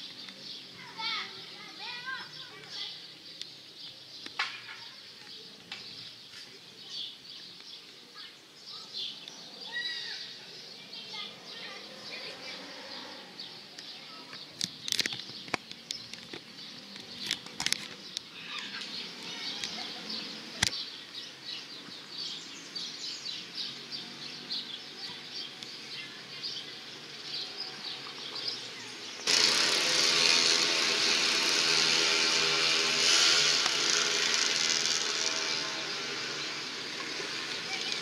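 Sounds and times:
small birds chirping: 0:00.0 - 0:38.0
sharp clicks: 0:33.5 - 0:35.5.

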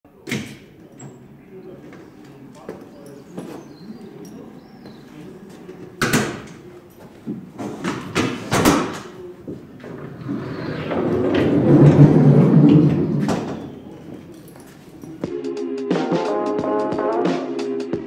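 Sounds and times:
knocks and clatters: 0:06.0 - 0:15.2
heavy object rolling rumble: 0:09.4 - 0:15.0.

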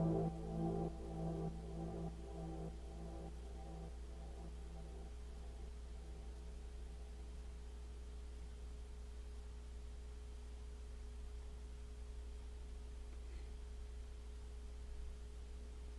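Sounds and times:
steady tone: 0:00.0 - 0:07.4
faint low hum: 0:00.0 - 0:15.9.

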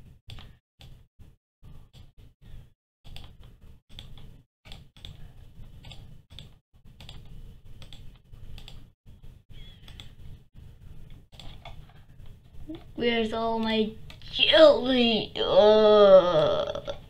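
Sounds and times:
computer mouse clicking: 0:03.1 - 0:08.9, 0:09.8 - 0:10.2, 0:11.0 - 0:12.9.

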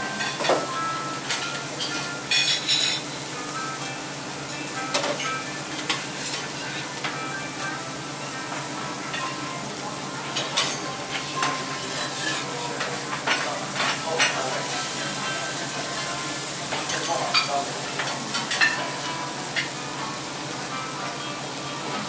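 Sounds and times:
food sizzling on griddle: 0:00.0 - 0:22.0
metal spatulas scraping and clacking: 0:11.5 - 0:12.5.

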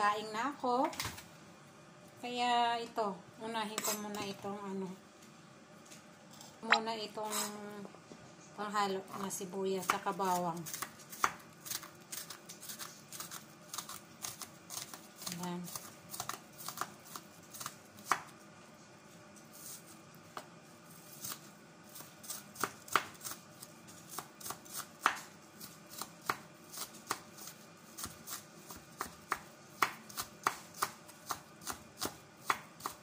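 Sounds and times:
knife chopping on wooden board: 0:24.1 - 0:25.3, 0:28.0 - 0:33.0.

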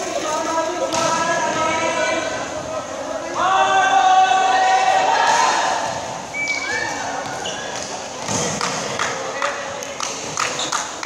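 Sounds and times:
players shouting in a gymnasium: 0:00.2 - 0:09.8.

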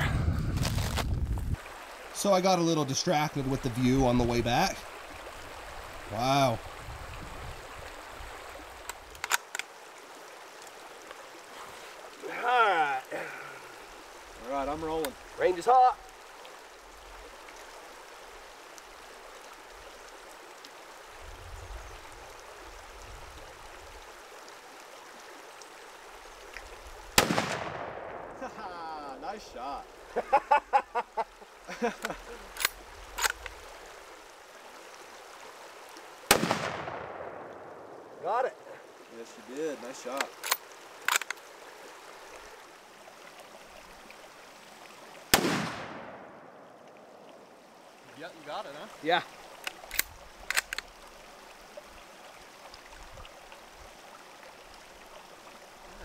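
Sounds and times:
creek flowing: 0:00.0 - 0:56.0
rifle shot with echo: 0:27.2 - 0:28.4, 0:36.3 - 0:37.8, 0:45.3 - 0:46.5.

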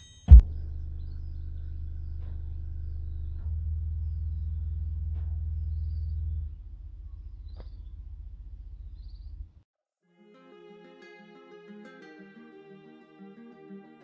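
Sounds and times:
deep bass through speakers: 0:00.3 - 0:09.6.

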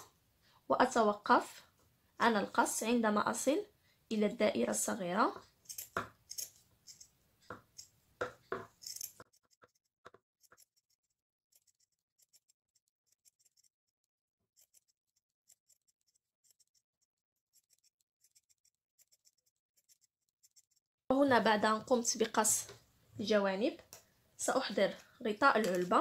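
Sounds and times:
scissors snipping fabric: 0:05.6 - 0:07.0, 0:08.8 - 0:13.8, 0:14.5 - 0:20.8.

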